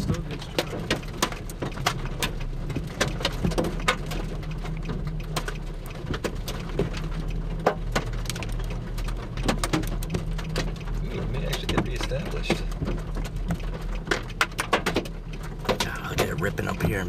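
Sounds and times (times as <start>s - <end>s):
raindrops tapping on vehicle: 0.0s - 17.0s
vehicle hum: 0.0s - 17.0s.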